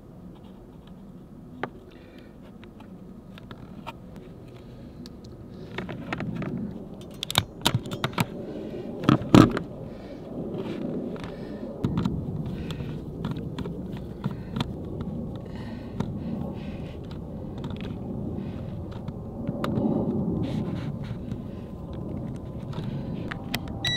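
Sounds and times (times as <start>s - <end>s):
cables rustling: 0.3s - 23.9s
hand crimper clicking and snapping: 2.7s - 8.3s.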